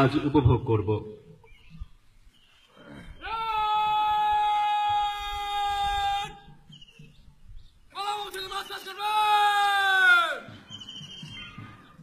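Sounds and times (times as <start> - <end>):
man shouting command: 7.9 - 10.4.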